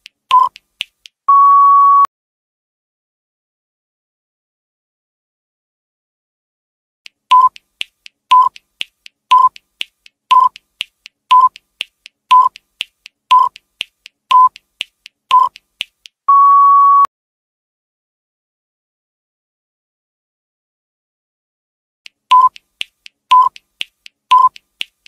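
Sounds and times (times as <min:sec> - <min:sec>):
countdown timer ticking: 0:00.0 - 0:01.2, 0:07.1 - 0:16.2, 0:22.1 - 0:25.0
long timer beep: 0:01.3 - 0:02.1, 0:07.3 - 0:07.6, 0:08.3 - 0:08.6, 0:09.3 - 0:09.6, 0:10.3 - 0:10.6, 0:11.3 - 0:11.6, 0:12.3 - 0:12.6, 0:13.3 - 0:13.6, 0:14.3 - 0:14.6, 0:15.3 - 0:15.6, 0:16.3 - 0:17.1, 0:22.3 - 0:22.6, 0:23.3 - 0:23.6, 0:24.3 - 0:24.6
loud timer beeps: 0:13.3 - 0:13.6, 0:24.3 - 0:24.5.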